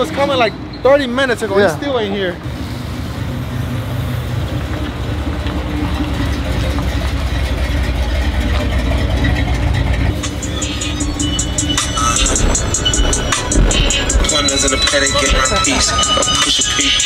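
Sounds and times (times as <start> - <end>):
truck engine idling: 0.0 - 17.0
music with ticking hi-hat: 10.1 - 17.0.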